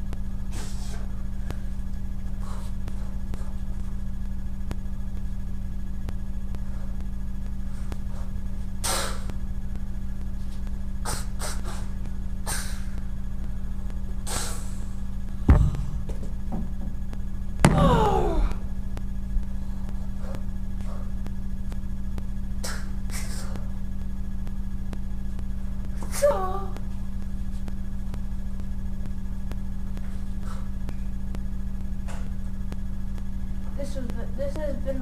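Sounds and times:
low electrical hum: 0.0s - 35.0s
thump: 15.5s - 16.7s.

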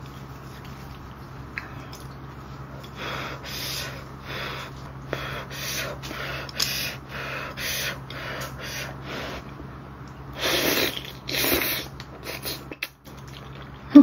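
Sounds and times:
person breathing hard: 2.9s - 9.5s.

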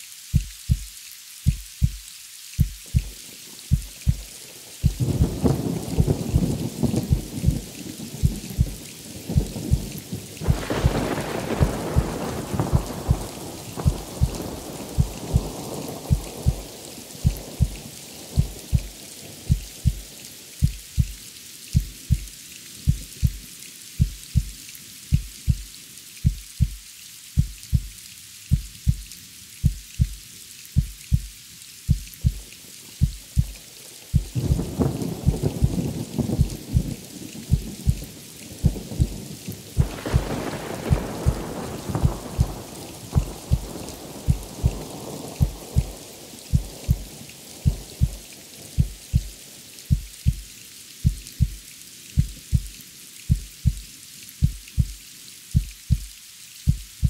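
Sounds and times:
steady rain: 0.0s - 57.0s
heartbeat thumping: 0.4s - 0.9s, 1.5s - 7.6s, 8.2s - 9.9s, 10.5s - 18.9s, 19.5s - 21.2s, 21.8s - 22.3s, 22.9s - 23.4s, 24.0s - 24.5s, 25.1s - 26.8s, 27.4s - 30.2s, 30.8s - 31.3s, 31.9s - 38.0s, 38.6s - 39.2s, 39.8s - 42.6s, 43.2s - 44.8s, 45.4s - 48.2s, 48.8s - 51.6s, 52.2s - 52.7s, 53.3s - 53.8s, 54.4s - 55.0s, 55.6s - 56.1s, 56.7s - 57.0s
thunder rumbling: 2.6s - 21.1s, 31.9s - 50.4s.

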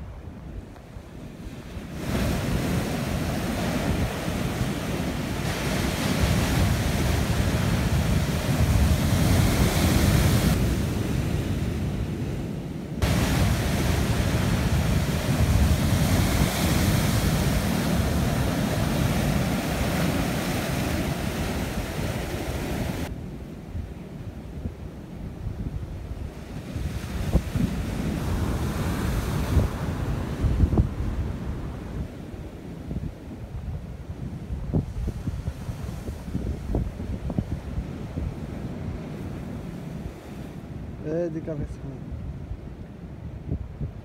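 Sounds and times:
wind buffeting microphone: 0.0s - 41.0s, 42.1s - 44.0s
surf breaking on rocks: 13.0s - 23.1s.

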